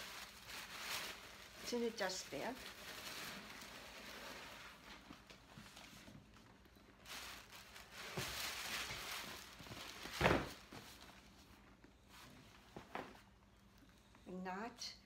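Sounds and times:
fabric bag and paper rustling: 0.0s - 13.4s.

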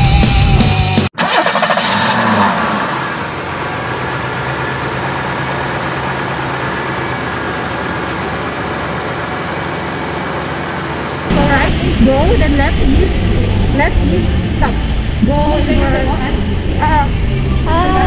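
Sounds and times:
loud rock music: 0.0s - 1.2s
electric go-kart running: 1.2s - 18.0s.

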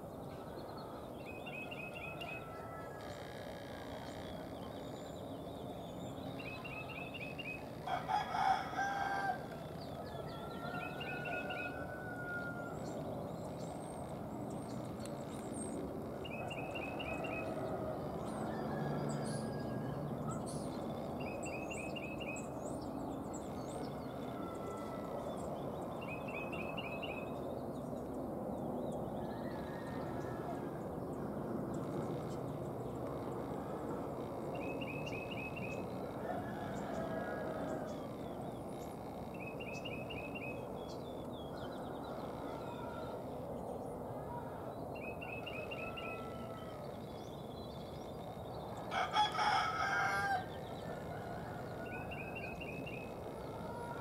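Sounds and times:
outdoor background noise: 0.0s - 54.0s
rooster crowing: 0.8s - 4.6s, 6.4s - 13.1s, 16.2s - 22.5s, 23.3s - 27.2s, 29.2s - 31.3s, 33.1s - 43.5s, 44.2s - 47.4s, 48.0s - 54.0s.

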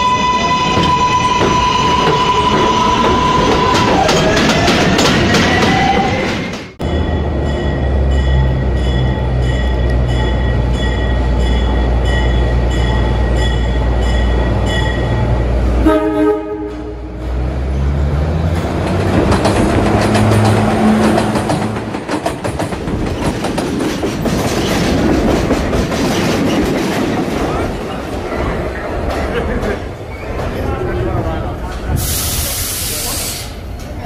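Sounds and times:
subway train running: 0.0s - 34.0s
train horn blast: 15.8s - 17.2s
wheels clicking over rail joints: 18.4s - 30.6s.

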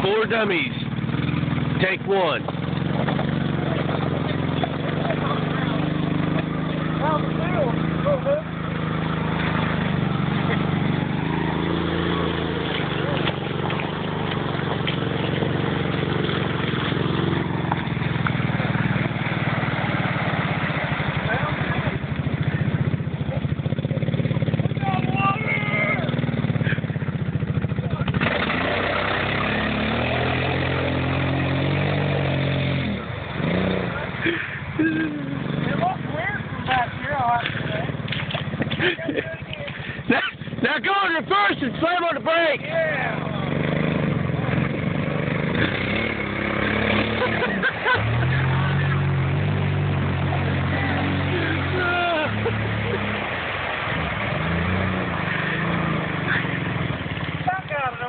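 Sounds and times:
riders calling out: 0.0s - 31.2s, 45.4s - 58.0s
utv engine chugging and revving: 0.0s - 58.0s
water splashing around tyres: 0.0s - 58.0s.

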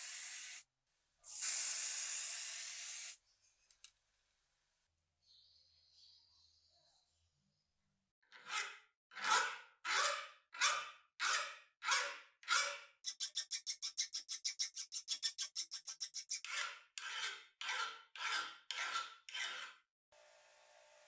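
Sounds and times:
hand file rasping on metal: 8.4s - 19.8s.

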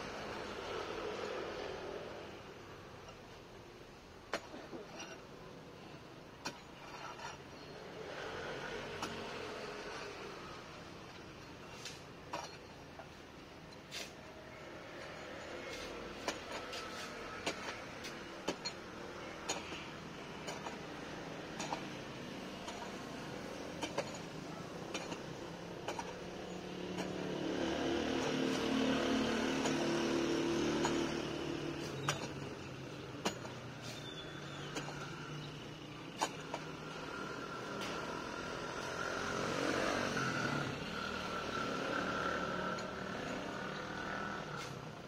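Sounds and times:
passing vehicle engine: 7.8s - 12.0s, 13.9s - 45.0s.

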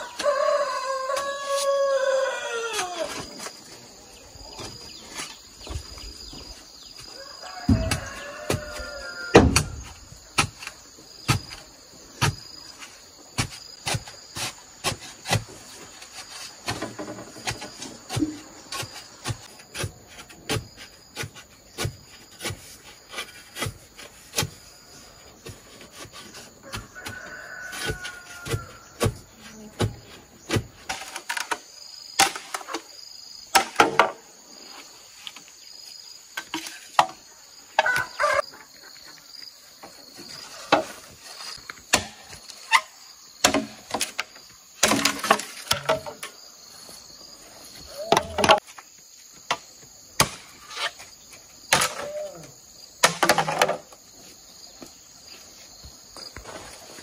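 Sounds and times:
pulsing insect chorus: 0.0s - 57.0s
irregular knocks and thuds: 4.5s - 24.7s, 25.4s - 31.6s.

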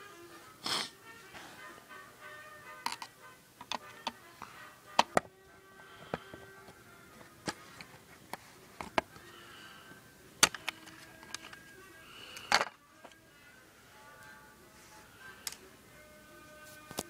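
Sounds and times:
faint background music: 0.0s - 17.0s
plastic and metal parts clicking: 2.8s - 4.2s, 10.4s - 11.6s, 12.4s - 13.2s.

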